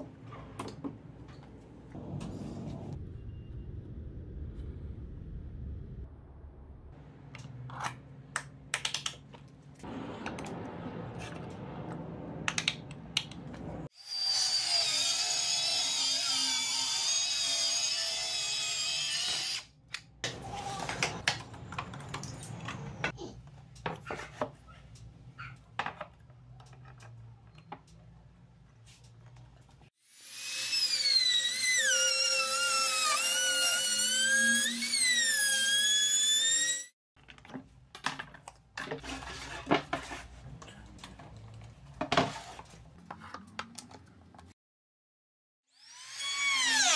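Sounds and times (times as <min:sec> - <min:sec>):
router whining cutting wood: 0:30.0 - 0:36.9, 0:45.7 - 0:46.9.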